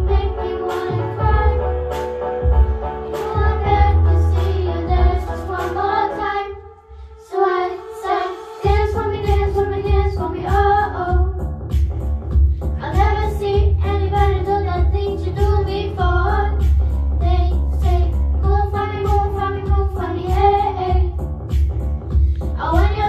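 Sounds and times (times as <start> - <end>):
girls singing pop song: 0.0 - 23.0
heavy pulsing bass beat: 2.4 - 4.1, 8.7 - 23.0.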